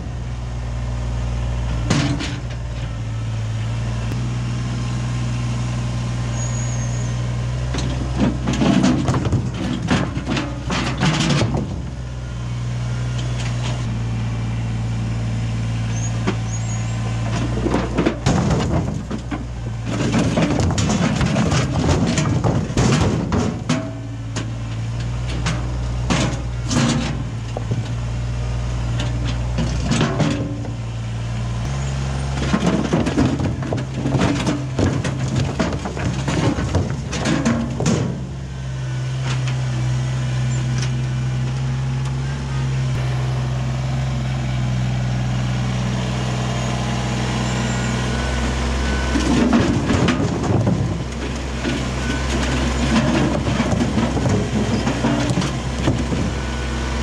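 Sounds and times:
tractor diesel engine running: 0:00.0 - 0:57.0
rocks clattering into trailer: 0:07.7 - 0:11.9, 0:17.2 - 0:27.9, 0:28.9 - 0:30.8, 0:32.2 - 0:38.4, 0:49.0 - 0:56.4.

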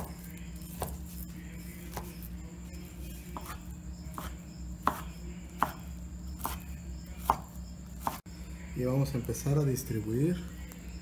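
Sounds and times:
knife chopping on wooden board: 0:00.0 - 0:02.3, 0:03.2 - 0:08.3.

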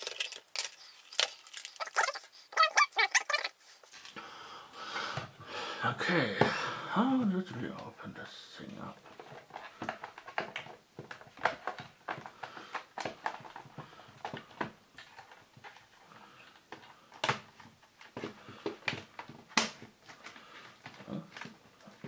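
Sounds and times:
plastic casing clicking and knocking: 0:09.0 - 0:22.0
sharp plastic snaps: 0:18.6 - 0:20.2.

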